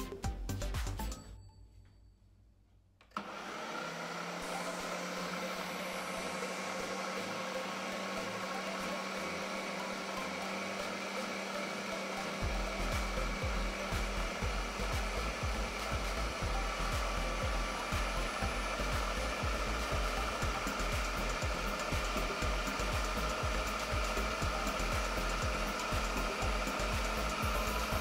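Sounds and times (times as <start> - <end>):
blender button press: 3.0 - 7.1
blender motor grinding: 3.0 - 28.0.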